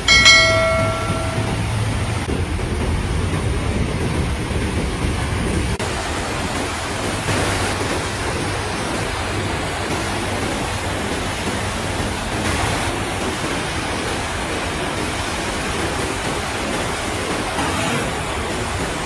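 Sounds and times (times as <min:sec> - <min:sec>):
floodwater rushing: 0:04.4 - 0:19.0.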